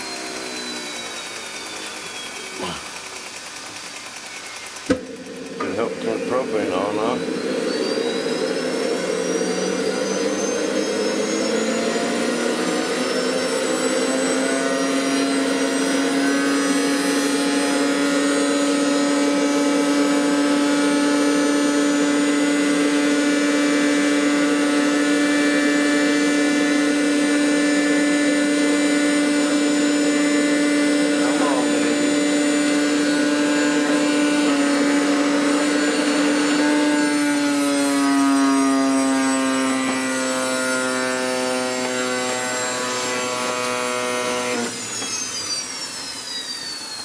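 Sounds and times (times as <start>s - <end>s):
jet turbine whine: 0.0s - 47.0s.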